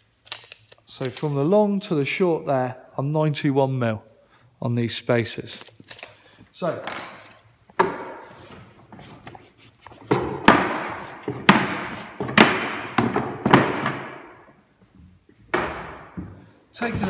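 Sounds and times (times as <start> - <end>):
sharp wooden knocks: 10.1 - 14.5, 15.5 - 17.0.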